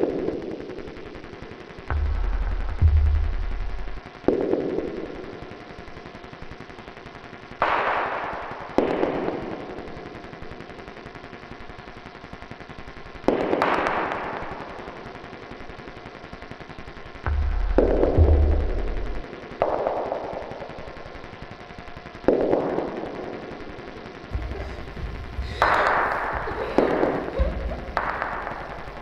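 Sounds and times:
swells of noise: 24.0 - 29.0.

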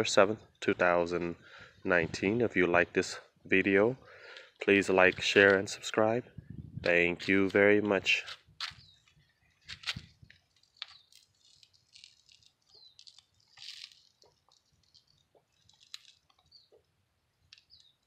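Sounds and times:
leaves rustling: 9.6 - 16.3.

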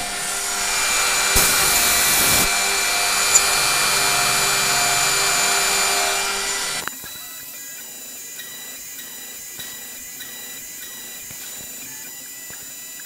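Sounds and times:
bit milling plywood: 0.0 - 6.9
router spindle whining: 0.0 - 7.0
sharp click: 1.4 - 4.0.

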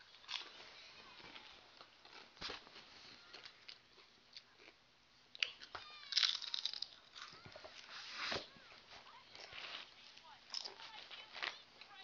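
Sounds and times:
chewing crunchy chips: 0.0 - 2.4, 3.2 - 4.8, 5.4 - 7.5.

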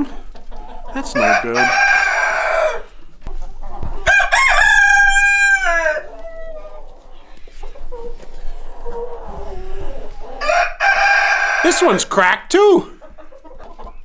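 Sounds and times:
rooster crowing: 1.1 - 2.9, 4.0 - 6.6, 10.4 - 11.8.

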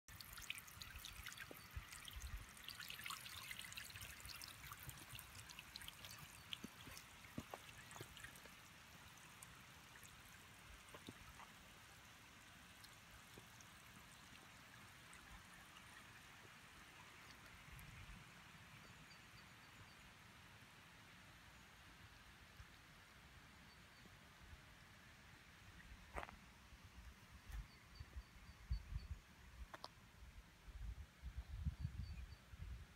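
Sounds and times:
water dripping: 0.1 - 18.2
fountain water splashing and trickling: 0.1 - 23.4.

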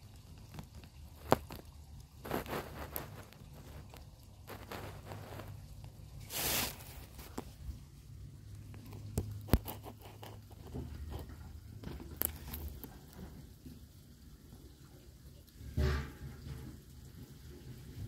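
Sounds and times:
small clicks scuffs and rustles: 0.1 - 7.7, 8.5 - 13.2
short hissing burst: 6.3 - 6.9.

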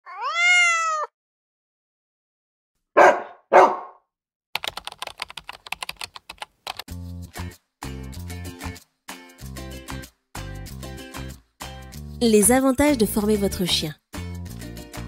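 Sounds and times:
cat meowing: 0.0 - 1.1
dog barking: 3.0 - 4.0
computer keyboard typing: 4.6 - 6.9.

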